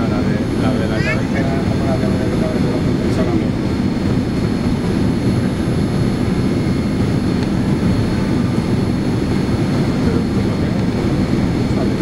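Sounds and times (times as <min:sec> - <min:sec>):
jet engine cabin roar: 0:00.0 - 0:12.0.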